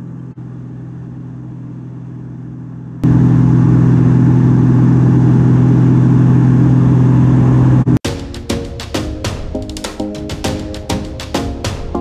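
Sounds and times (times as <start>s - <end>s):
plane engine and propeller droning: 0.0s - 8.0s.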